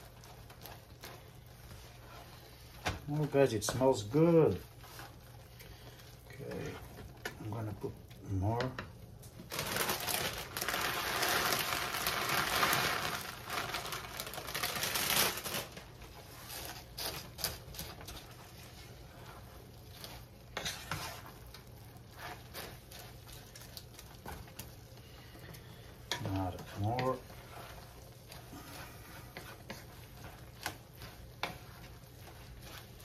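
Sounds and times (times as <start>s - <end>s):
wooden spoon stirring: 0.0s - 33.0s
plastic snack bag crinkling: 9.4s - 18.4s
potato sticks poured into pan: 9.6s - 15.8s.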